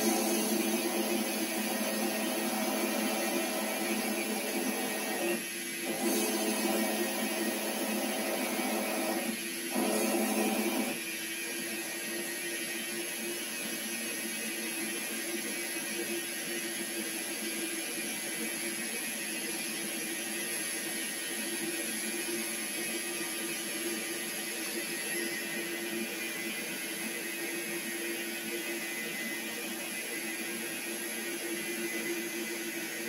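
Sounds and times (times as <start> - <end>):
metal lathe running: 0.0 - 11.0.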